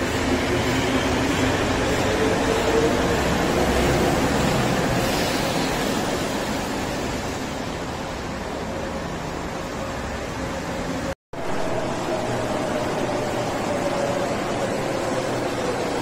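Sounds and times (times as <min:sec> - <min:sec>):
train pulling away: 0:00.0 - 0:09.4.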